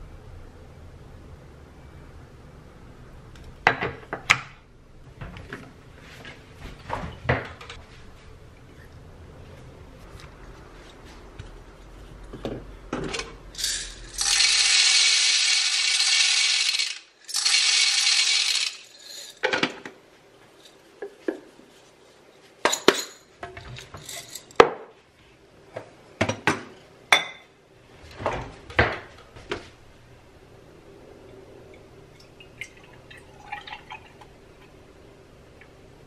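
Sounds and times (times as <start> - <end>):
coffee grinder grinding beans: 13.6 - 19.4
clinks and knocks of coffee tools: 22.7 - 24.7.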